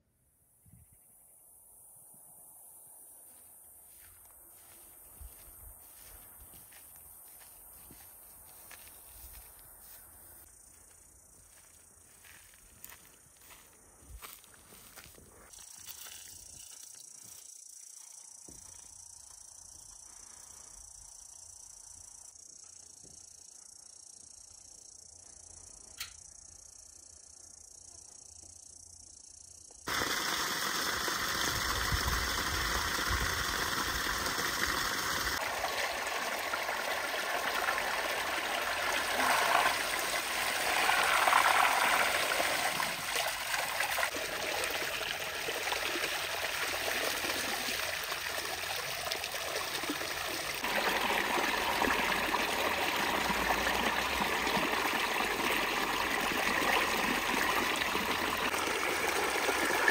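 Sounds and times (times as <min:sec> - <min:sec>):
water gushing from hose: 0:29.9 - 0:59.9
water splashing in basin: 0:29.9 - 0:59.9.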